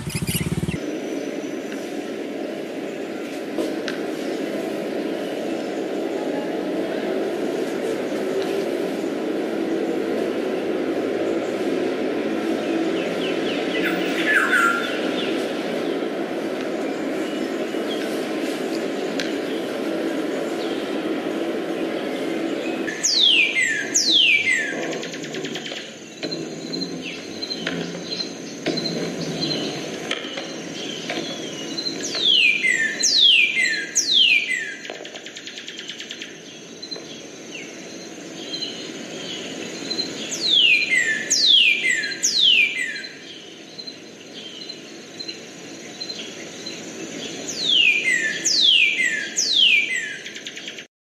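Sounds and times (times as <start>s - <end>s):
cardinal whistling song: 47.6s - 50.2s.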